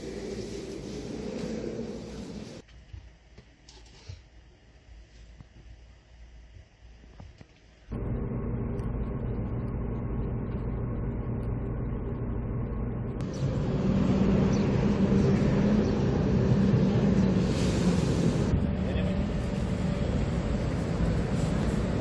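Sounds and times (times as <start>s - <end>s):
bus engine and road noise: 7.9s - 22.0s
city traffic noise: 7.9s - 22.0s.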